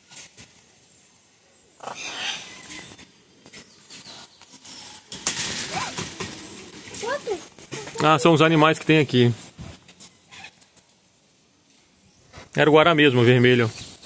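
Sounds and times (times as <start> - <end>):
parrot squawking: 1.8 - 2.8.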